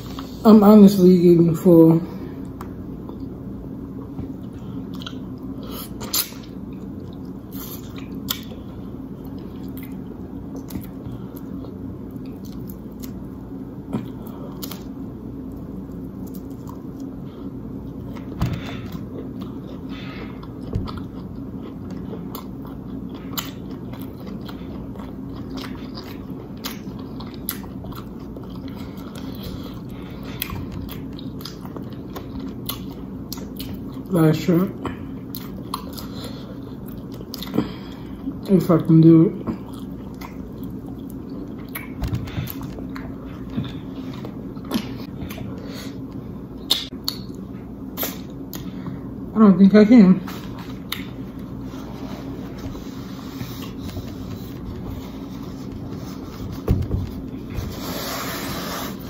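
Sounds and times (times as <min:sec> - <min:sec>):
wet chewing and lip smacking: 0:18.9 - 0:34.1, 0:35.2 - 0:37.6, 0:39.6 - 0:48.7, 0:50.8 - 0:51.5.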